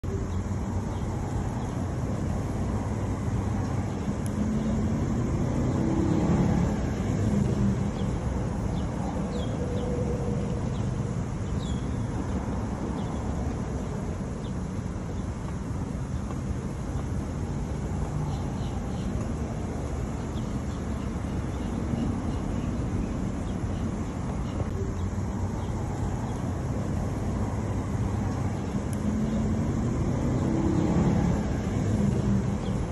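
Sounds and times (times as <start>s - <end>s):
low rumbling background noise: 0.0s - 32.9s.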